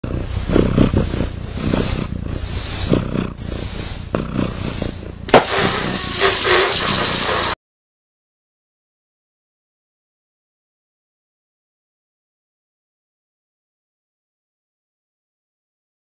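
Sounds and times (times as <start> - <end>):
balloon inflating hiss: 0.0 - 7.6
balloon bursting bang: 3.5 - 7.6.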